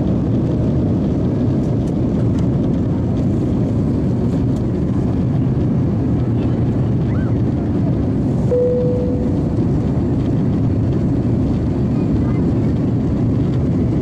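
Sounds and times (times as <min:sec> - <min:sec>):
airplane cabin noise: 0:00.0 - 0:14.0
soft tone: 0:08.5 - 0:09.6.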